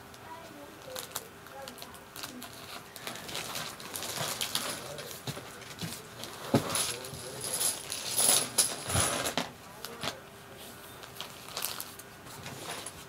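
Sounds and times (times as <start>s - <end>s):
plastic packet rustling: 0.8s - 6.1s, 11.0s - 13.0s.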